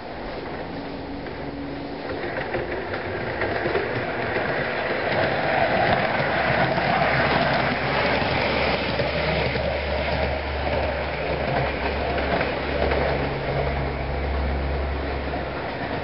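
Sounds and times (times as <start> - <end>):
model train rattling whir: 1.2 - 16.0.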